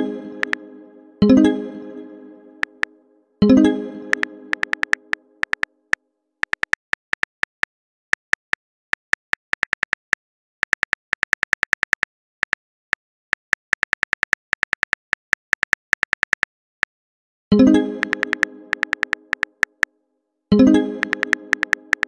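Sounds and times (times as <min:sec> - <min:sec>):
smartphone keyboard taps: 0:04.1 - 0:05.7, 0:18.0 - 0:19.9, 0:21.0 - 0:22.0.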